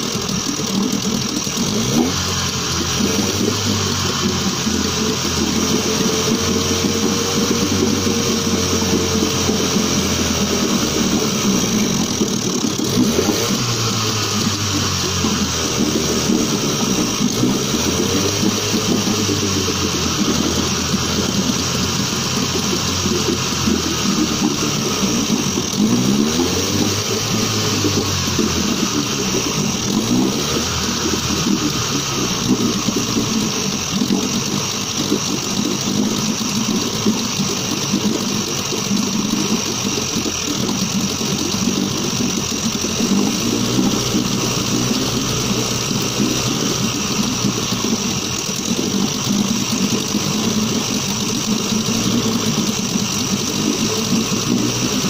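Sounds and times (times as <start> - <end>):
outboard motor running: 0.0 - 55.0.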